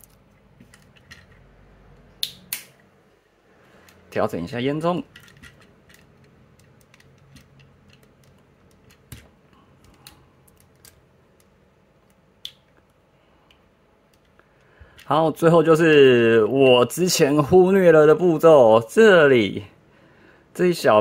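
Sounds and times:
plastic parts clicking: 0:00.0 - 0:01.5, 0:05.1 - 0:12.7.

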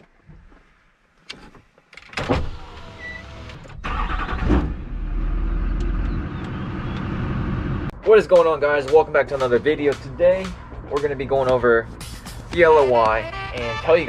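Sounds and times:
diesel engine starting and idling: 0:02.3 - 0:07.9.

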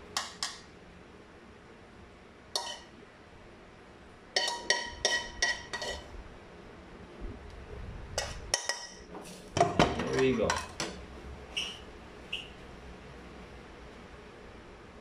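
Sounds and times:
metal spoon clinking on pan: 0:00.2 - 0:00.7, 0:02.6 - 0:02.9, 0:04.4 - 0:06.1, 0:08.2 - 0:09.0, 0:10.0 - 0:11.0.

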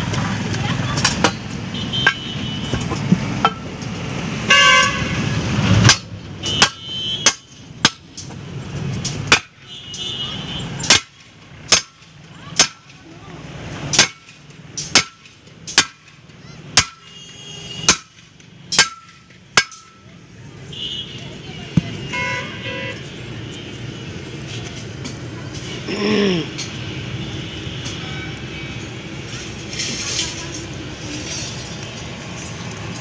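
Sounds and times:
sledgehammer striking steel rim: 0:13.9 - 0:16.2, 0:17.9 - 0:20.0.

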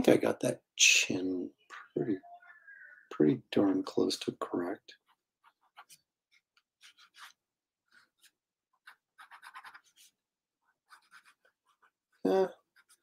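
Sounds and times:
pen scratching on paper: 0:05.0 - 0:13.0.

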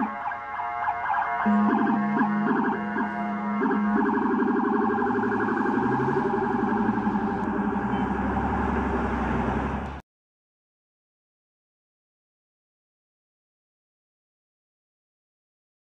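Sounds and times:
police siren warbling: 0:00.0 - 0:10.0
street traffic: 0:00.0 - 0:10.0.

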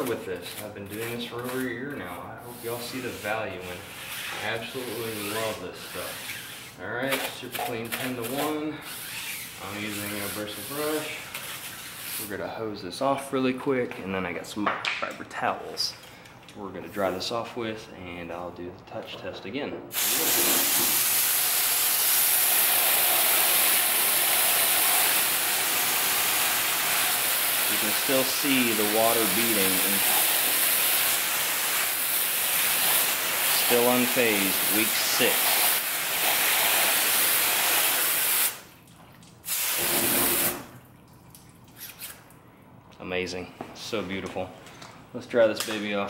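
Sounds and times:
hose nozzle spraying water: 0:02.5 - 0:12.3, 0:19.9 - 0:38.8, 0:39.4 - 0:40.7.

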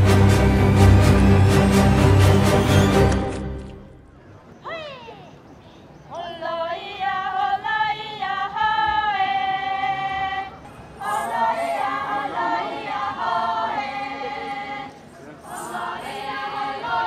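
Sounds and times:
women singing unaccompanied: 0:06.1 - 0:15.0, 0:15.6 - 0:17.0.

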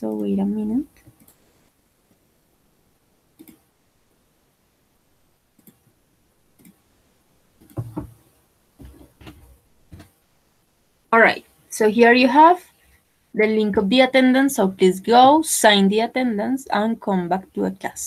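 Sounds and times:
computer mouse clicks: 0:01.0 - 0:01.5, 0:03.4 - 0:03.7, 0:05.6 - 0:06.0, 0:06.6 - 0:06.8, 0:07.6 - 0:08.2
keyboard taps: 0:07.6 - 0:08.2.

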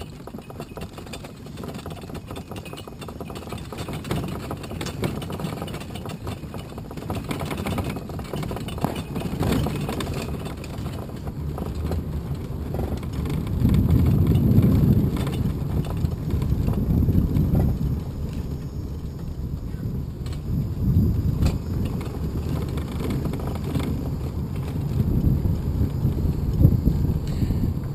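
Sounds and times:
fire engine rumbling: 0:04.6 - 0:27.9.

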